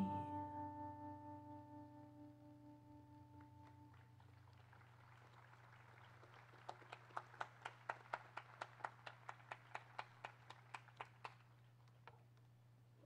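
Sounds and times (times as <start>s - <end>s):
sparse applause: 3.9s - 11.5s.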